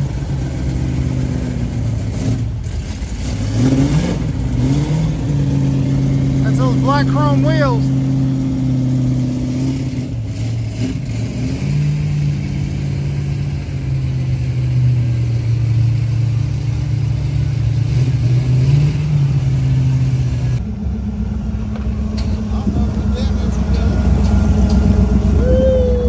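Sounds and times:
car engine idling with light revs: 0:00.0 - 0:26.0.

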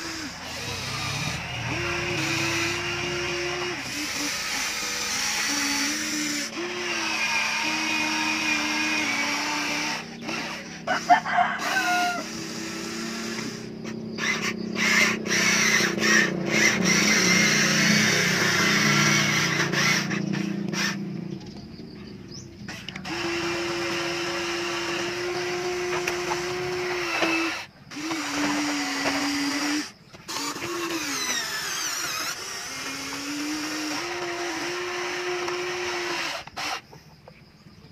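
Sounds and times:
toy excavator motor whine: 0:00.0 - 0:37.4.

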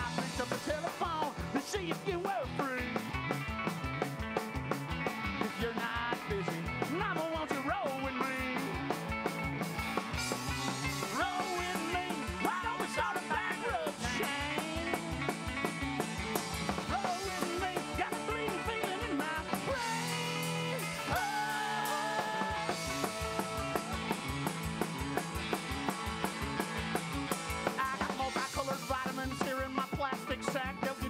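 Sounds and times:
live rock and roll band: 0:00.0 - 0:31.0.

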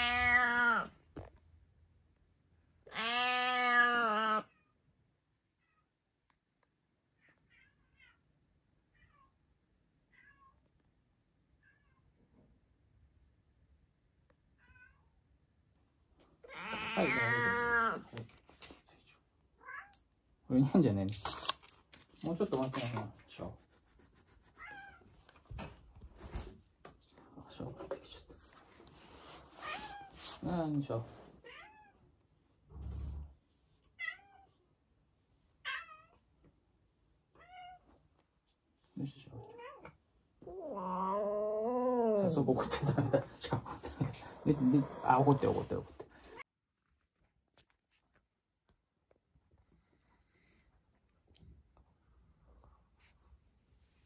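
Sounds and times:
cat meowing: 0:00.0 - 0:01.0, 0:02.8 - 0:04.7, 0:14.6 - 0:15.1, 0:16.4 - 0:18.2, 0:24.6 - 0:25.1, 0:34.0 - 0:34.6, 0:35.6 - 0:36.2, 0:37.3 - 0:37.9.

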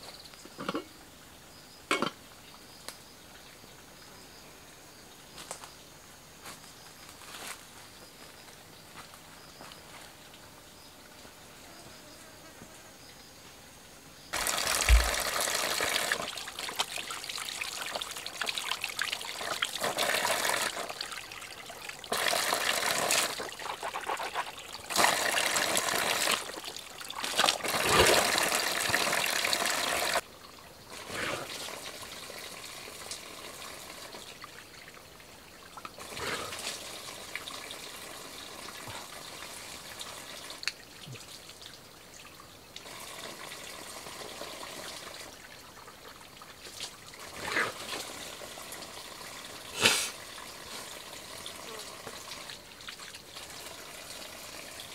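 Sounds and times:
water pouring onto rocks: 0:14.4 - 0:30.2.

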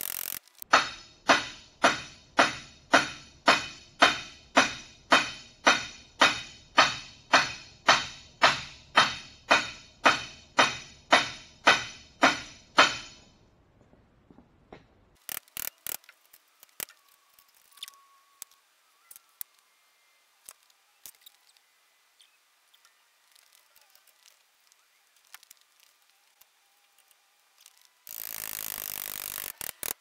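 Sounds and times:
hammer striking metal bar: 0:00.6 - 0:13.3.

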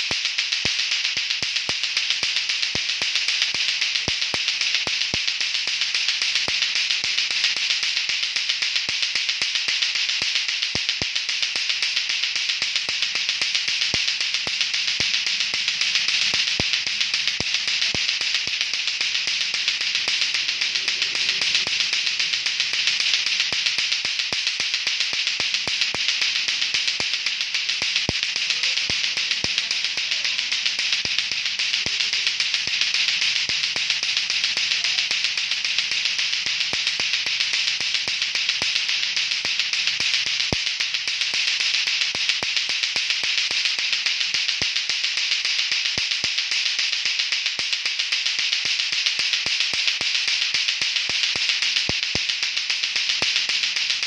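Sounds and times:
plastic clacker toy clacking: 0:00.0 - 0:54.0.

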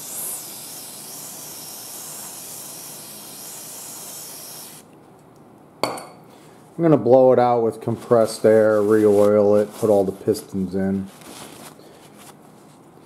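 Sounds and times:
aerosol can spraying hiss: 0:00.0 - 0:04.8.

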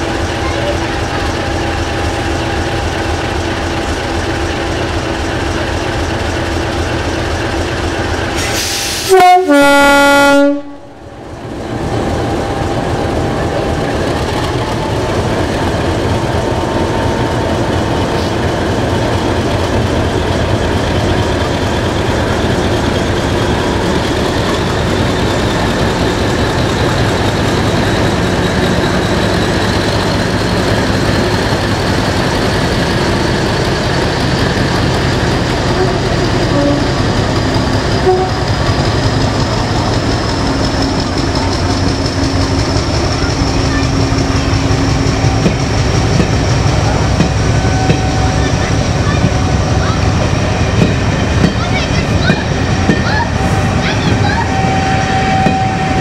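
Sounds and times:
diesel locomotive engine: 0:00.0 - 0:56.0
two-tone train horn: 0:08.9 - 0:11.0, 0:35.7 - 0:37.0, 0:38.0 - 0:38.7, 0:53.3 - 0:56.0.

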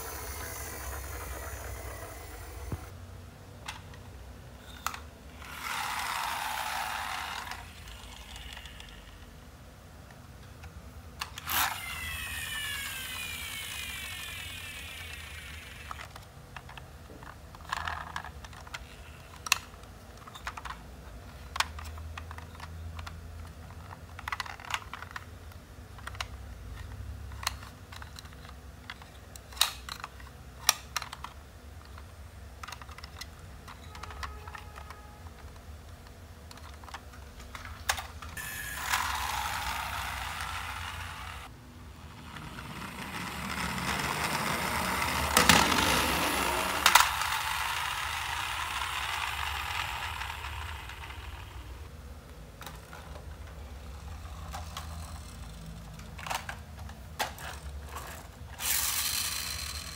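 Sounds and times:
toy wheels rolling on tile: 0:00.0 - 0:02.9, 0:04.6 - 0:09.4, 0:11.2 - 0:25.4, 0:36.5 - 0:51.9, 0:52.6 - 0:59.9
plastic toy clicks and knocks: 0:04.8 - 0:09.3, 0:10.6 - 0:41.4, 0:42.3 - 0:51.7, 0:52.6 - 0:59.9.

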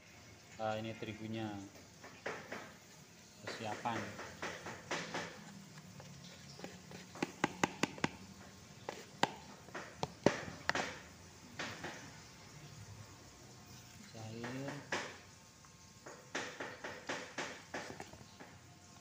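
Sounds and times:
plastic basin taps and knocks: 0:03.4 - 0:05.8, 0:06.6 - 0:12.1, 0:14.4 - 0:15.2, 0:16.1 - 0:18.6.

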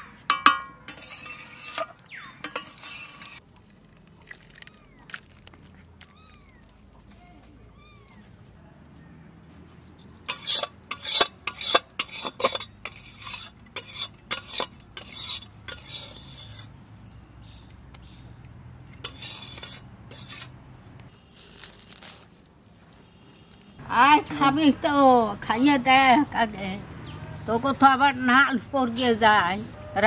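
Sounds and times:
spoon scraping a pot: 0:00.0 - 0:03.4, 0:10.2 - 0:16.7, 0:18.9 - 0:20.6.

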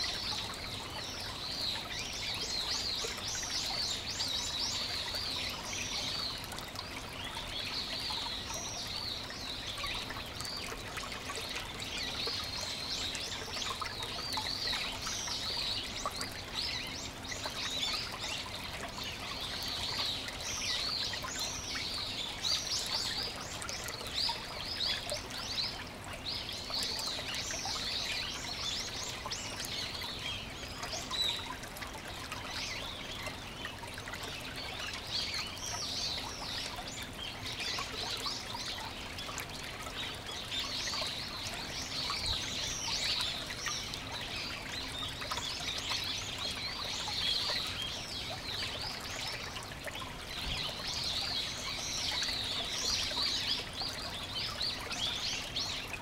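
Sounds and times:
stream trickling over rocks: 0:00.0 - 0:56.0.

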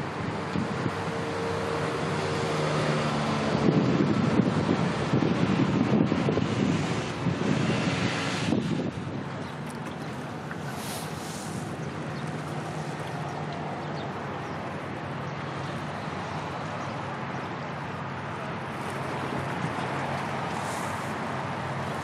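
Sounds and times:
ship engine drone: 0:00.0 - 0:22.0
water noise: 0:00.0 - 0:22.0
wind: 0:00.0 - 0:22.0.

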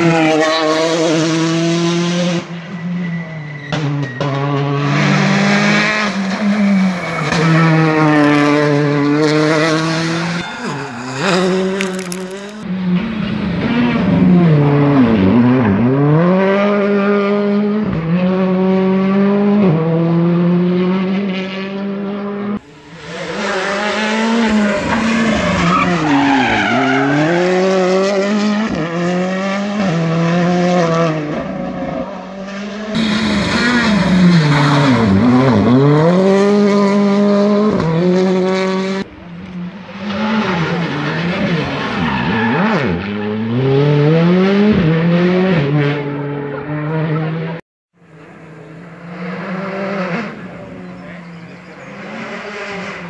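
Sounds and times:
tyres skidding: 0:00.0 - 0:15.8, 0:22.6 - 0:45.2
rally car engines revving high: 0:00.0 - 0:53.0.

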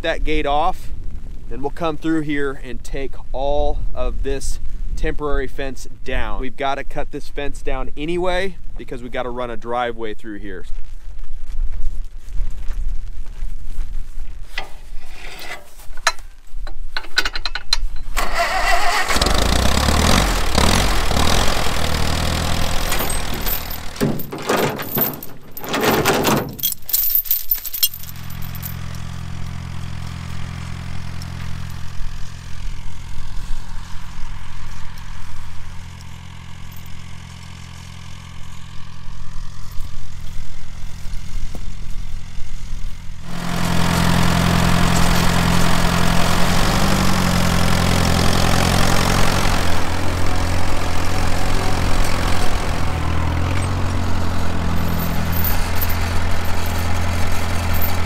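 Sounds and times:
vehicle engine idling: 0:17.0 - 0:25.7, 0:27.7 - 0:58.0.

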